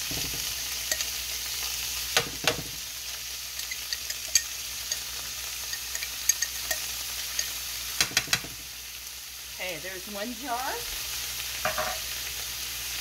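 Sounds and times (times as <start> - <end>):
food sizzling in a frying pan: 0.0 - 13.0
spoon clinking on glass jar: 3.6 - 7.6.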